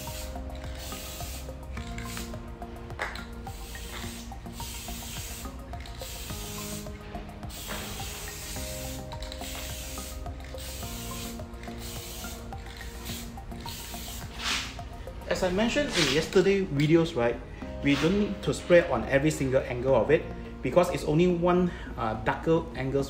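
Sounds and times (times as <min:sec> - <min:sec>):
spray paint can hissing: 0:00.0 - 0:02.4, 0:03.0 - 0:14.9, 0:17.9 - 0:18.2
background music with held notes: 0:00.0 - 0:23.0.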